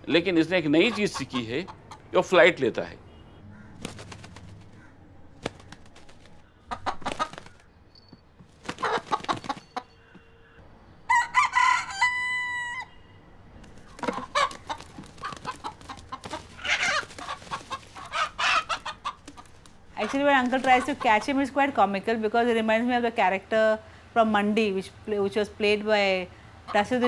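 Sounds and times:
rooster crowing: 11.1s - 13.2s.

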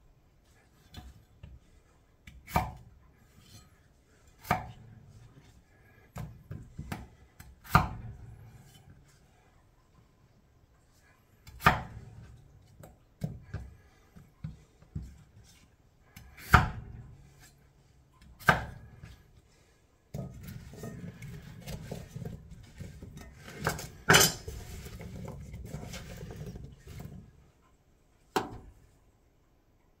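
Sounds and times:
knife chopping on cutting board: 4.4s - 4.8s, 6.2s - 8.2s, 11.4s - 12.1s, 16.2s - 16.9s, 18.4s - 19.1s.

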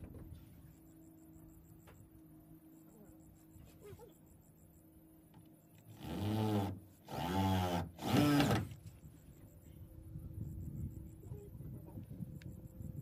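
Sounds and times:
power drill drilling into wood: 6.0s - 8.8s.

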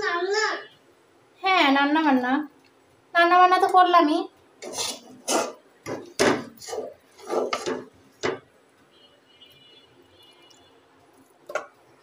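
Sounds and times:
spatula scraping metal wok: 4.6s - 5.6s, 6.4s - 7.9s.

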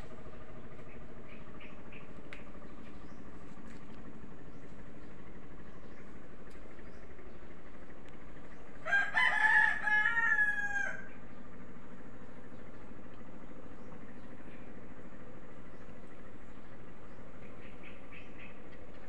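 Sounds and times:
rooster crowing: 8.8s - 11.2s.

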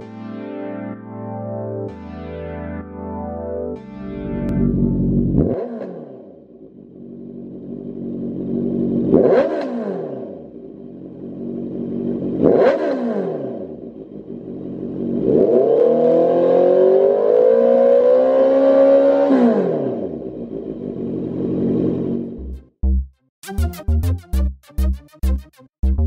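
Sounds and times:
motorcycle engine revving: 4.4s - 22.7s.

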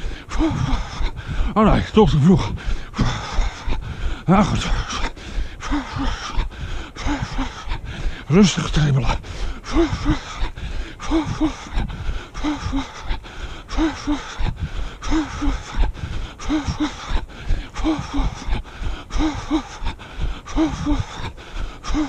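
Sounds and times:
jogger breathing hard: 0.0s - 22.0s.

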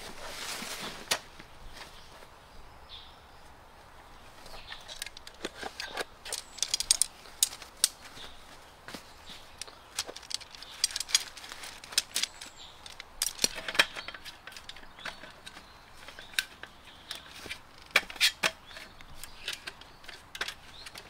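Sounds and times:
fabric stuff sack rustling: 0.0s - 2.3s
light metallic clicks and clinks: 4.6s - 8.0s, 9.2s - 21.0s.

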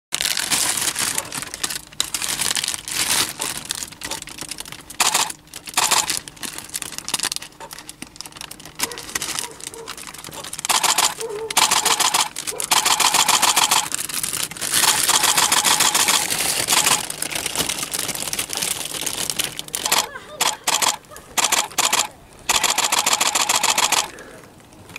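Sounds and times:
handling rustle: 0.2s - 20.1s
camera shutter clicking: 5.0s - 6.2s, 10.6s - 13.9s, 14.8s - 17.1s, 19.8s - 24.1s.

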